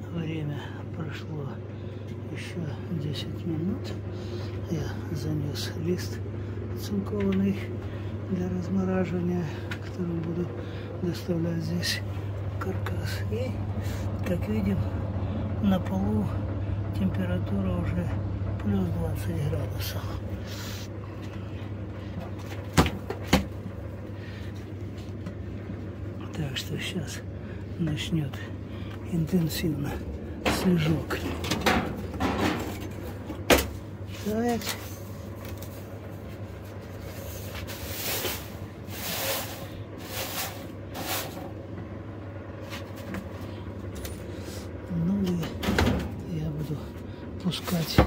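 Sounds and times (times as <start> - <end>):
electric fan humming: 0.0 - 48.0
rustling clattering noises: 28.9 - 41.6, 42.6 - 44.5.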